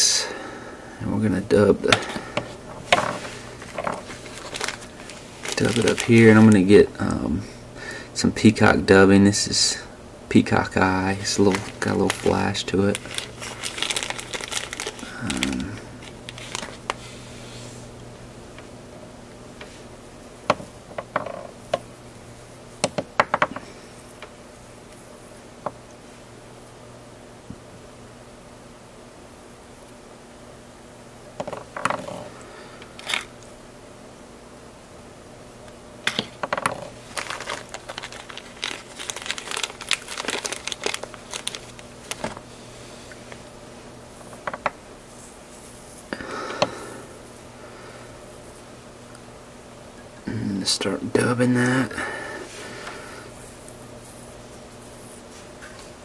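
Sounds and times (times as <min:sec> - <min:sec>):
steady low hum: 0:00.0 - 0:56.0
plastic packet crinkling: 0:03.6 - 0:06.7, 0:11.1 - 0:17.0, 0:32.9 - 0:33.3, 0:36.7 - 0:42.4.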